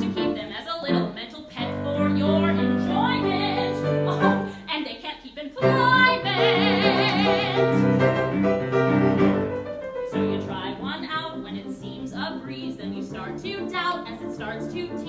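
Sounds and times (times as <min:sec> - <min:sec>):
piano accompaniment: 0:00.0 - 0:04.6, 0:05.6 - 0:15.0
woman singing with vibrato: 0:00.0 - 0:08.2.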